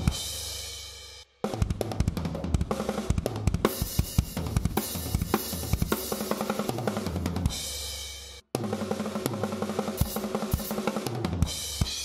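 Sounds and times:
acoustic drum kit groove: 0.0 - 12.0.

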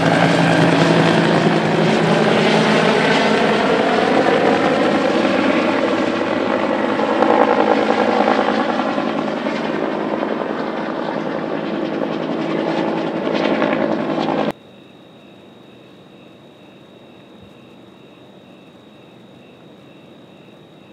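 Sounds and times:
helicopter rotor and turbine: 0.0 - 14.6
insects chirping: 14.5 - 20.9.

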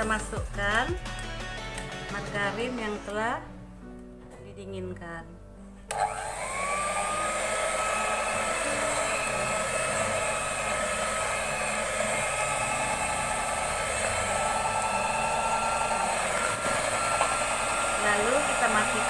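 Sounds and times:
electric hand mixer whining: 5.9 - 19.0.

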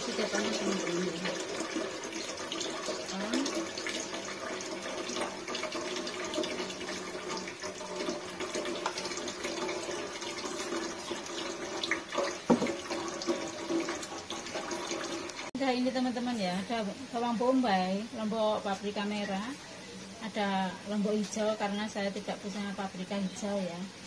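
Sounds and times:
deep-frying sizzle and crackle: 0.0 - 14.6.

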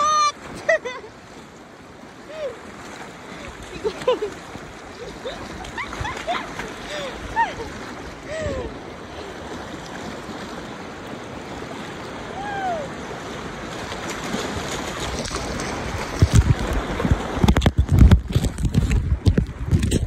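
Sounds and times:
river rushing over rocks: 2.0 - 18.1
wind and handling thumps on microphone: 14.0 - 20.0.

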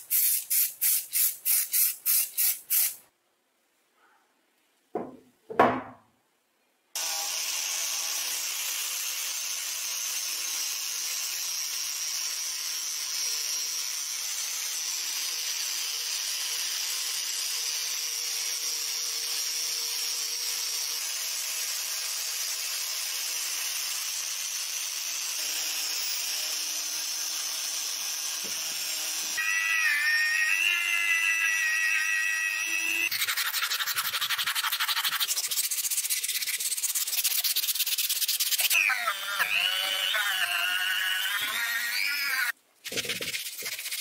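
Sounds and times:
metal part knocking on wooden bench: 5.0 - 6.0
angle grinder grinding metal: 25.2 - 44.0.

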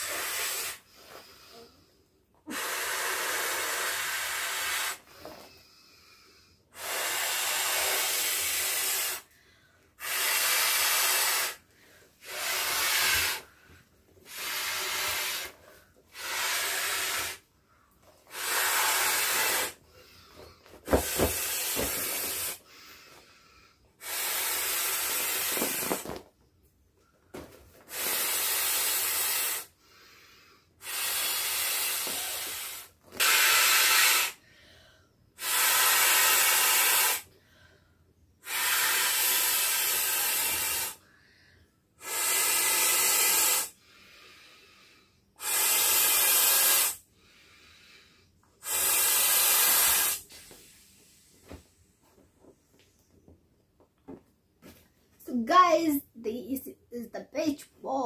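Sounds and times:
blowing into beach ball valve: 0.0 - 1.7, 2.5 - 5.2, 6.7 - 9.3, 10.0 - 17.5, 18.2 - 20.2, 20.8 - 23.0, 24.0 - 26.2, 27.8 - 30.1, 30.8 - 34.5, 35.4 - 37.3, 38.4 - 41.0, 42.0 - 44.5, 45.4 - 48.0, 48.6 - 51.3.

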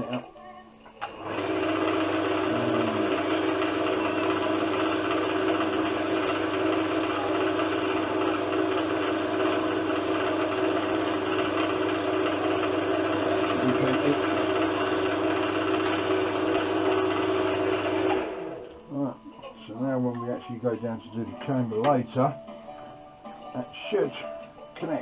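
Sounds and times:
wood lathe humming: 1.1 - 19.0
drill bit boring into wood: 1.3 - 18.6.

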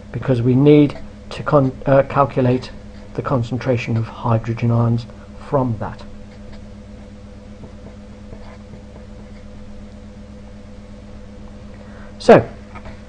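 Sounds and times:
electrical hum and hiss: 0.0 - 13.0
marker writing on paper: 7.6 - 9.5.

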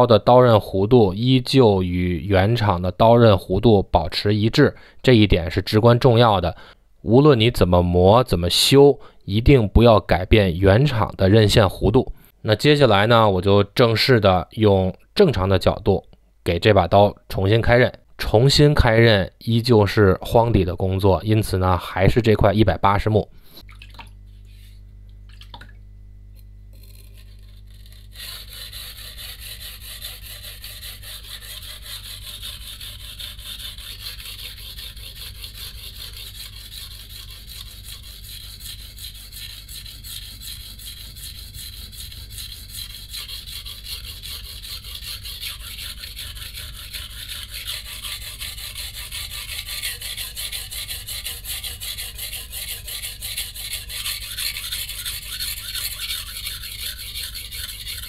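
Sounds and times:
knife blade rasping on whetstone: 26.7 - 58.0.

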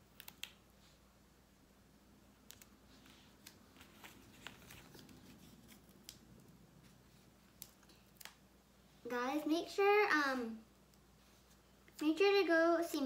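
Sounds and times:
low room hum: 0.0 - 13.0
small clicks and rustles: 2.4 - 8.4.

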